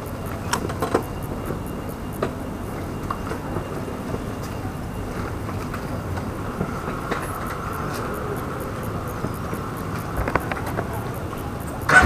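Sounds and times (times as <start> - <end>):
faint clicks: 5.2 - 12.0.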